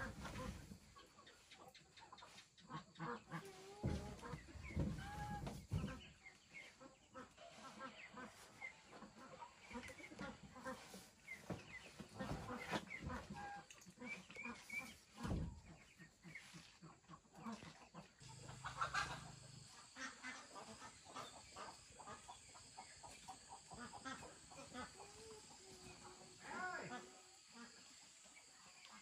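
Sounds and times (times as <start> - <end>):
poultry calling: 2.6 - 16.5, 18.2 - 29.0.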